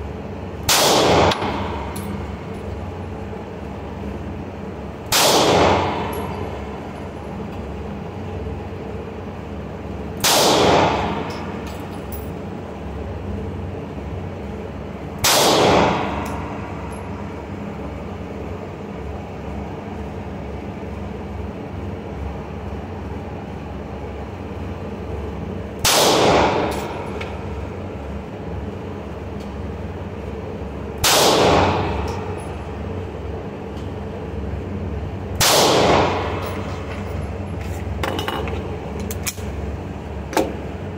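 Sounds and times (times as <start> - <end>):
steady background hum: 0.0 - 40.9
pistol shots echoing indoors: 0.6 - 2.6, 5.0 - 6.7, 10.2 - 11.6, 15.2 - 17.0, 25.8 - 27.2, 31.0 - 32.4, 35.3 - 36.9.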